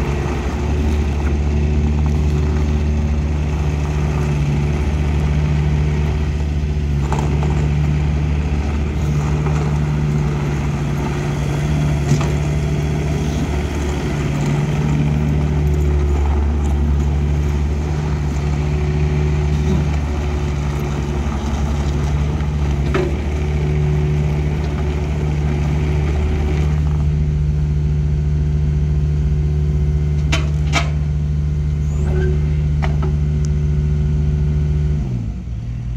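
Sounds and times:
rubber tracks over gravel: 0.0 - 27.0
diesel engine running under load: 0.0 - 35.9.

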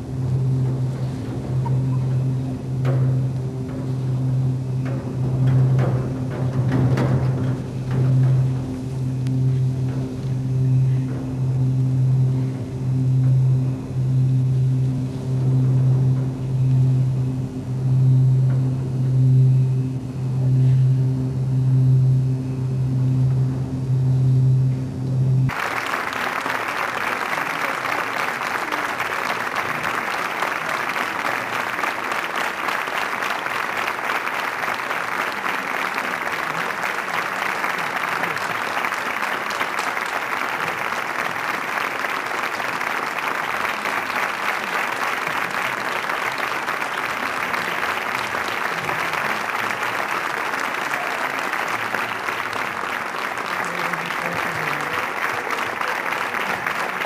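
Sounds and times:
low held tone: 0.0 - 25.7
audience applauding: 25.5 - 57.0.

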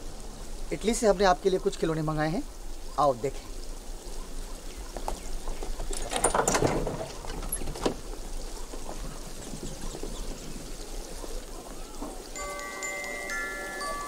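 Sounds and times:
wooden crate door creaking: 5.6 - 8.3
latch rattling: 5.9 - 8.1.

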